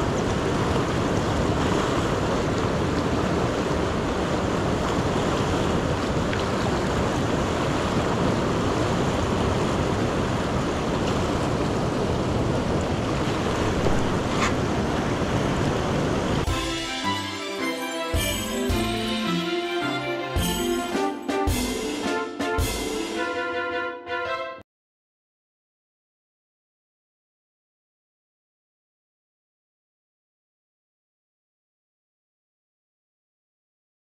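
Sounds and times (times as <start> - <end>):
river current rushing: 0.0 - 23.6.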